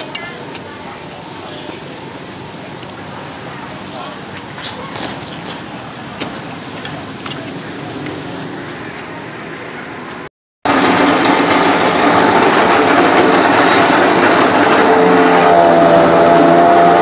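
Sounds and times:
murmur of room noise: 0:00.0 - 0:10.3.

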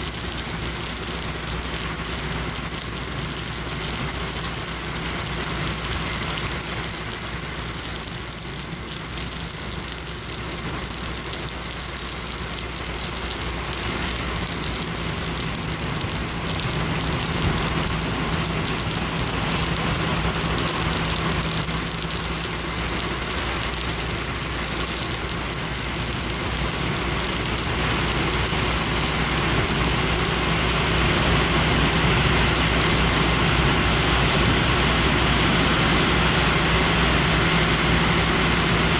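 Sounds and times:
heavy engine idling: 0:00.0 - 0:38.9
rain on wet pavement: 0:00.0 - 0:38.9.

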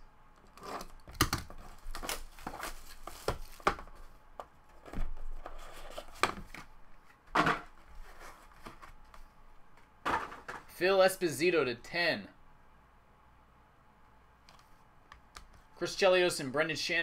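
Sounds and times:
shrink wrap tearing and crinkling: 0:01.3 - 0:03.6.

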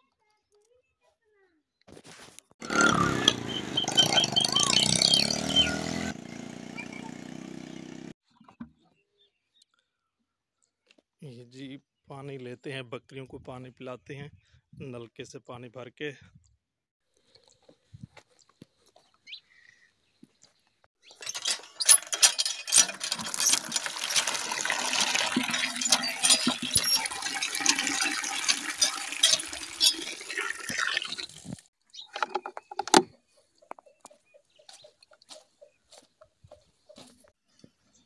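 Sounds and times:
water gushing into plastic bucket: 0:22.9 - 0:31.7.

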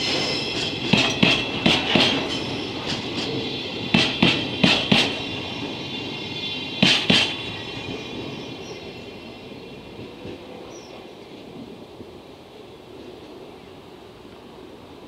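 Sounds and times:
train wheels clacking over rail joints: 0:00.0 - 0:05.8, 0:06.8 - 0:08.0
freight train rumble: 0:00.0 - 0:15.0.

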